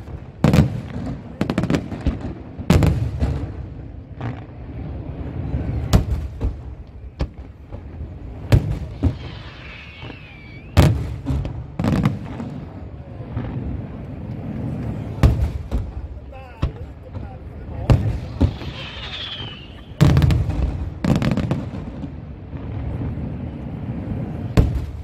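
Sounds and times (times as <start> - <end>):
fireworks bangs: 0.0 - 25.0
firework wavering whistle: 8.8 - 11.1, 18.1 - 20.8.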